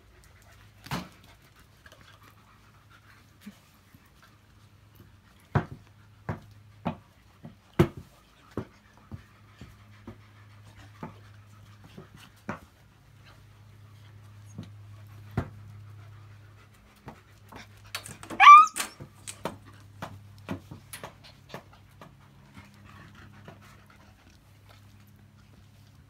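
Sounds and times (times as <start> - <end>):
dog yelping: 18.2 - 19.0.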